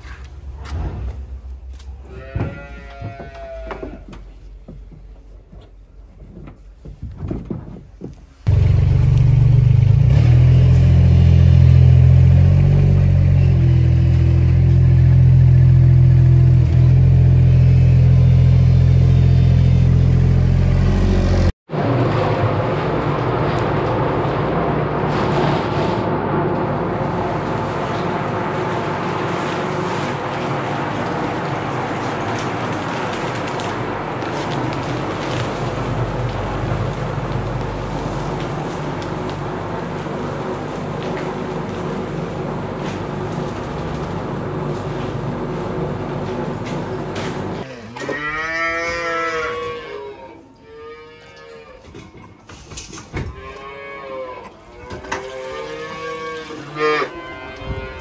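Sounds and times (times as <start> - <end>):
calf mooing: 2.0 - 4.2, 47.7 - 52.0, 53.3 - 58.0
diesel engine running: 8.5 - 47.6.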